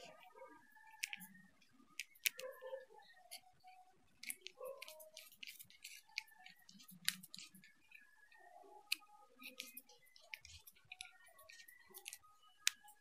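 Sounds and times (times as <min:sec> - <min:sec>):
small parts being handled: 0:00.0 - 0:13.0
small screwdriver clicking: 0:00.9 - 0:01.3.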